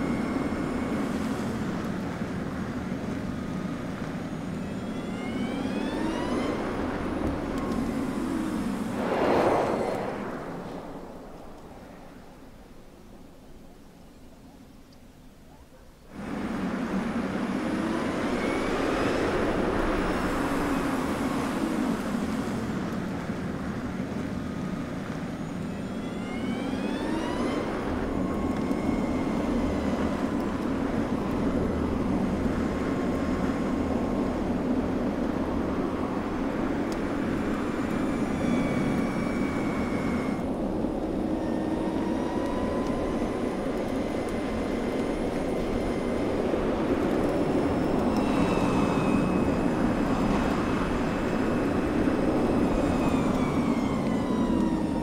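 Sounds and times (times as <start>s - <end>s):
electric motor whine: 4.4s - 8.9s, 25.6s - 32.6s, 37.0s - 55.0s.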